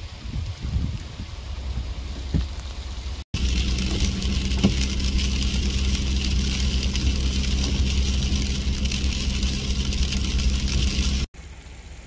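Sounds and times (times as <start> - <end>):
freezing rain hissing and ticking: 0.0 - 12.0
vehicle engine idling: 2.7 - 12.0.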